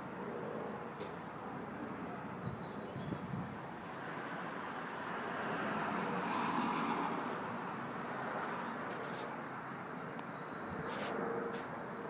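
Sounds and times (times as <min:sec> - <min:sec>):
muffled helicopter rotor noise: 0:10.8 - 0:12.0.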